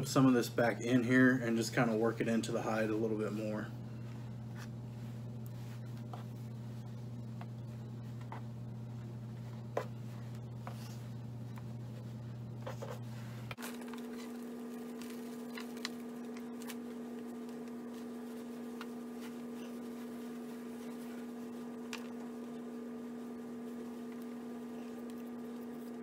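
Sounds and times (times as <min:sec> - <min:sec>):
low electrical hum: 0:00.0 - 0:26.0
hands rustling powder on hide: 0:13.0 - 0:26.0.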